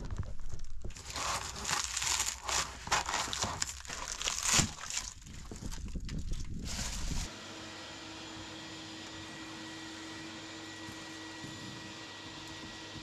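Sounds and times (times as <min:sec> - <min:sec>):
plastic fittings cracking and breaking: 0:00.0 - 0:07.3.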